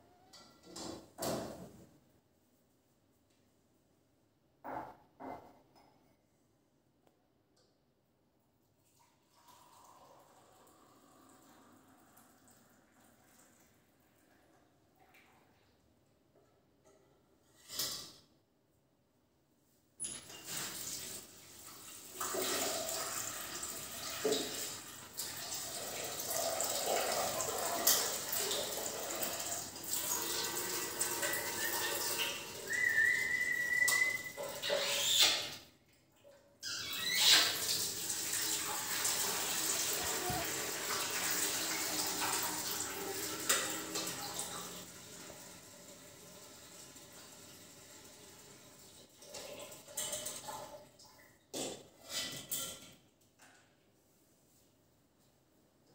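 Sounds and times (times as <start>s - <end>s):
parakeet whistling: 32.7s - 35.2s.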